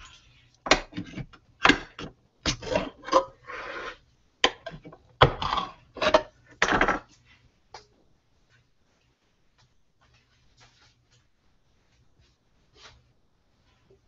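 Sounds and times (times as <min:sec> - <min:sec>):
can lid scraping: 0:02.5 - 0:04.0.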